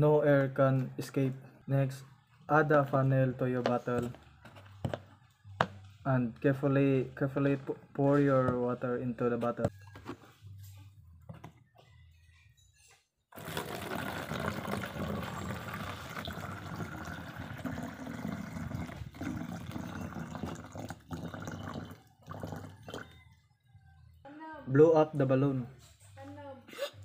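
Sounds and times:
water pouring into plastic bottle: 13.4s - 23.2s.

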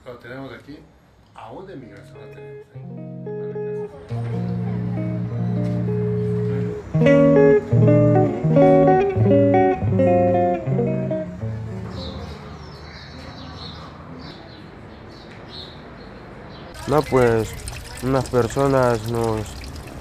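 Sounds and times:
plucked guitar notes: 2.0s - 12.4s.

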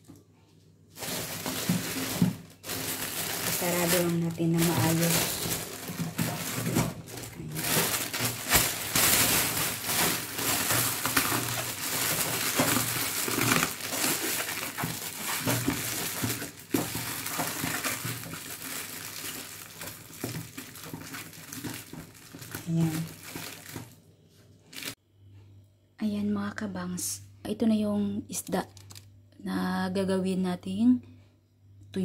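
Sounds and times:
plastic bag crinkling: 0.9s - 24.0s, 24.7s - 25.0s, 28.6s - 29.0s.

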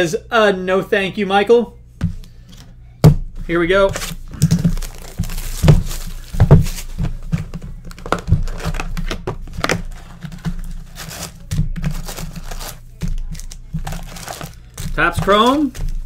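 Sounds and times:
plastic shrink-wrap crackling: 3.9s - 7.0s, 9.6s - 16.0s.

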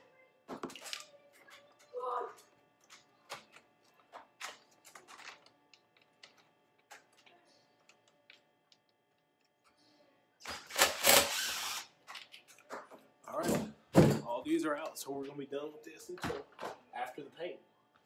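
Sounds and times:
cordless drill running: 10.5s - 11.9s.

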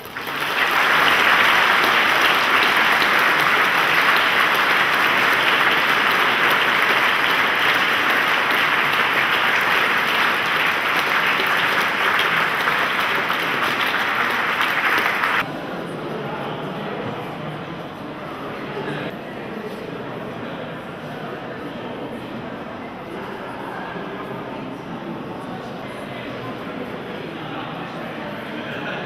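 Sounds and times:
audience applauding: 0.0s - 15.4s.

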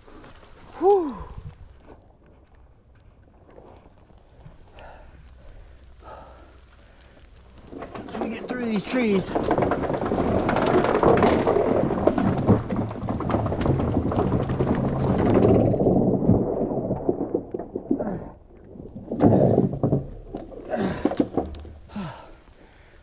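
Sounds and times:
twigs snapping and rustling: 0.0s - 15.6s
plastic pipe scraping through brush: 6.8s - 18.0s, 18.7s - 22.0s.

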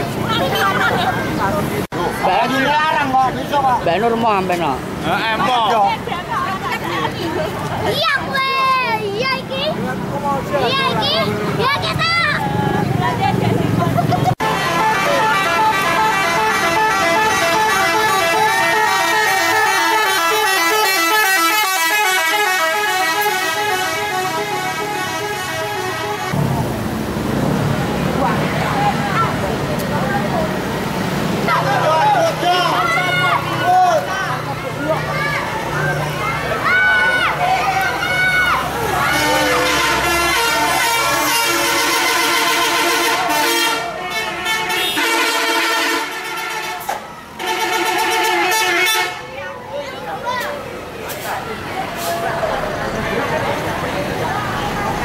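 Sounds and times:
musical air horn: 14.4s - 26.4s, 39.1s - 49.2s.

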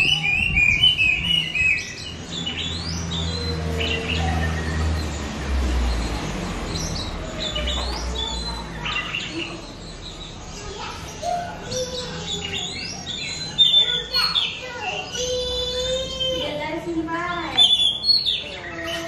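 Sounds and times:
bird chirps and whistles: 0.0s - 5.2s, 17.5s - 19.0s.

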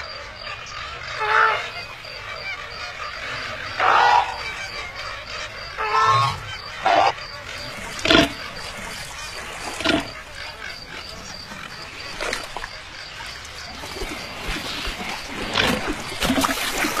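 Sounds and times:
cartoon flamingo calls: 1.2s - 1.7s, 3.7s - 5.1s, 5.7s - 7.2s.

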